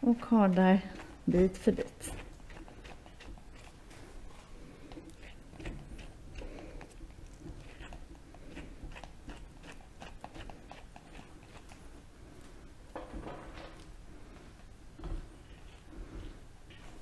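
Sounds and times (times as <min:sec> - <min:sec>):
brush raking through dog fur: 0:00.6 - 0:11.8.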